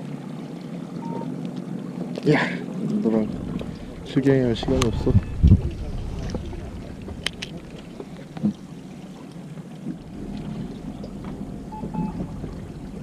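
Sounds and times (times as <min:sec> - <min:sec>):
water lapping against boat: 0:00.0 - 0:13.0.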